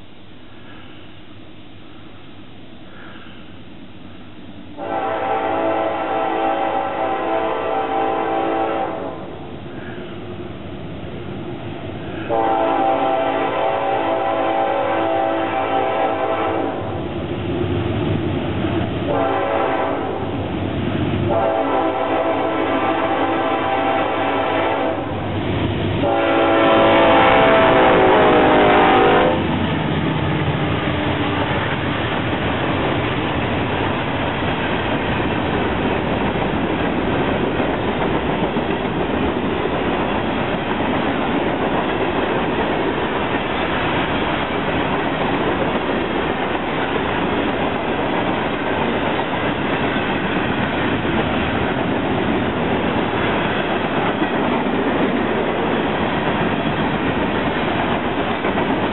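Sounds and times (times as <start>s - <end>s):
locomotive horn blasts: 4.7s - 9.3s, 12.2s - 17.0s, 19.0s - 20.3s, 21.3s - 25.2s, 26.0s - 29.5s
train wheels clacking over rails: 25.1s - 58.9s.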